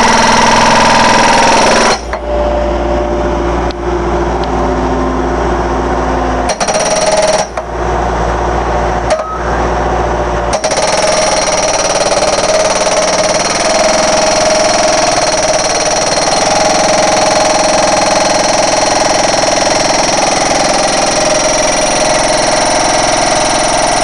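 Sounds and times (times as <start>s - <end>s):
skid steer engine running: 0.0s - 24.0s.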